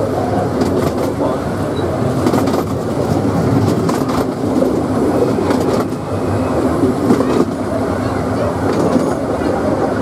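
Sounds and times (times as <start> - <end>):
train wheels rumbling on track: 0.0 - 10.0
wheels clicking over rail joints: 2.2 - 6.1, 8.6 - 10.0.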